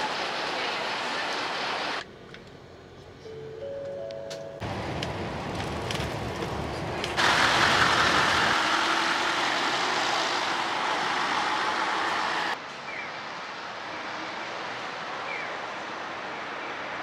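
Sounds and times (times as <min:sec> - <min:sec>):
coach road rumble: 0:00.0 - 0:12.6
coach engine pulling away: 0:04.6 - 0:12.6.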